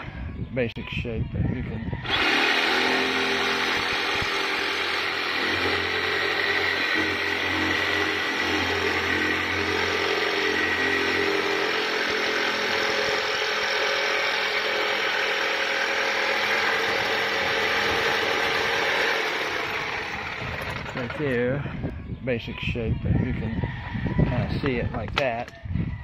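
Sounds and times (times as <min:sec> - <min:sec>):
electric jigsaw cutting plywood: 0:02.0 - 0:21.2.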